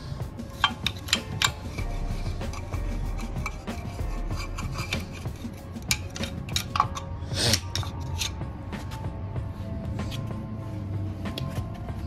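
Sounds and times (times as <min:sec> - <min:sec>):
scraping on metal: 0:00.5 - 0:08.4.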